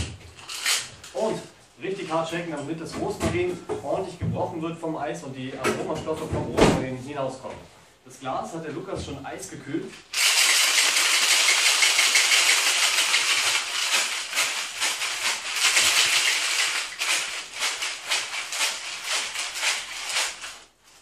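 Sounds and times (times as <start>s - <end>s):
ice rattling in cocktail shaker: 10.1s - 20.7s.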